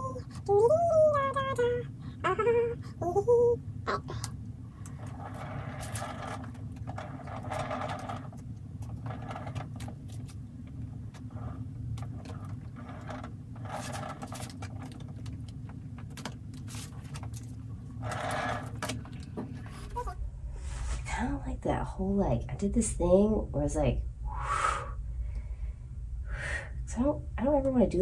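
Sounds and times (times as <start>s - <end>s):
steady low hum: 0.0s - 28.0s
plastic spreader scraping paint: 4.9s - 10.4s, 11.2s - 15.5s, 16.6s - 19.0s.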